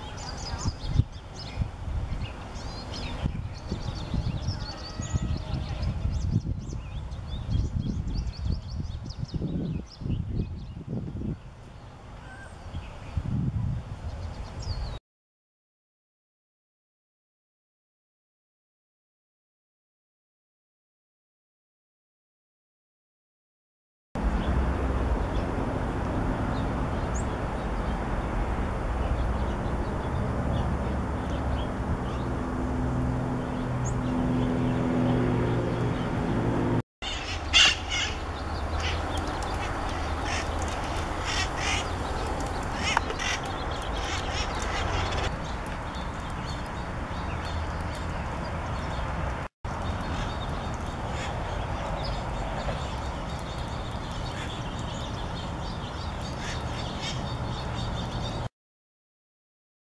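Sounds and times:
parrots squawking: 37.0 - 38.2, 38.8 - 42.0, 42.7 - 45.3.

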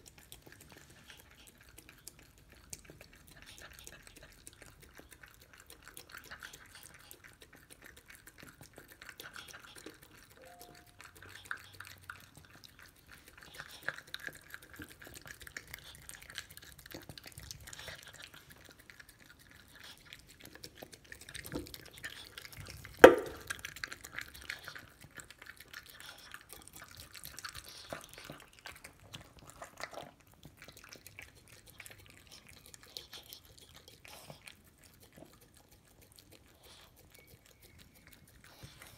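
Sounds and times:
dog chewing and lapping: 0.0 - 38.9
sharp knock on bowl: 23.0 - 23.4.

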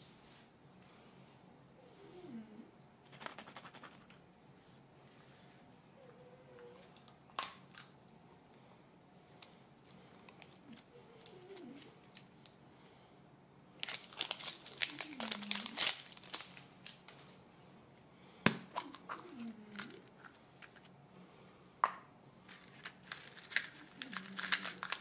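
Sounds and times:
wrapper crinkling: 10.3 - 12.6, 13.8 - 17.4, 22.5 - 25.0.

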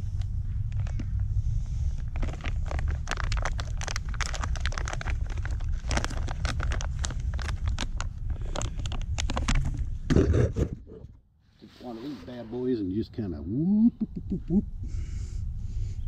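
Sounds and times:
steady low rumble: 0.0 - 16.0
camping gear crinkling and rustling: 1.9 - 10.3.

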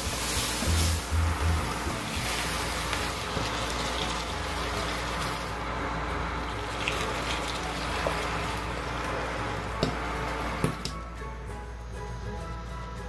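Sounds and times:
liquid pouring into frying pan: 0.0 - 5.6, 6.5 - 10.5
pan sizzling: 0.0 - 12.3.

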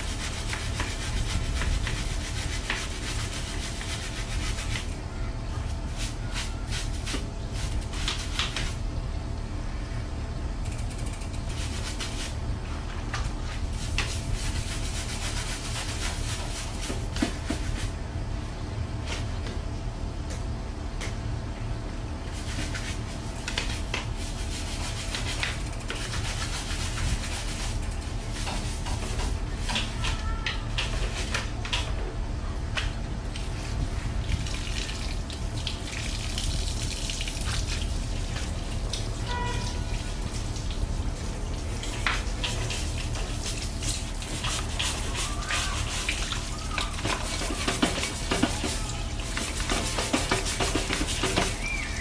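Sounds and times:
wet sponge scrubbing: 0.0 - 5.0, 13.4 - 17.9, 22.3 - 30.2, 41.2 - 52.0
steady low hum: 0.0 - 52.0
water splashing and dripping: 34.2 - 51.6.

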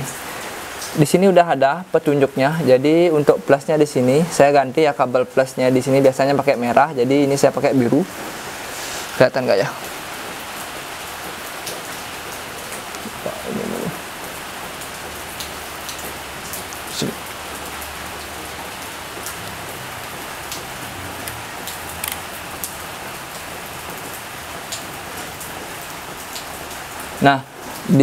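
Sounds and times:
rain hiss: 0.0 - 28.0
small clicks: 22.0 - 22.2.

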